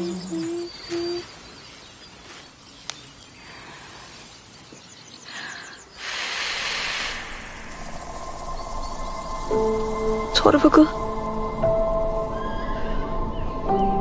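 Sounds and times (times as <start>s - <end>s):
insects chirping: 0.0s - 13.5s
breathy whoosh of air: 5.2s - 9.4s.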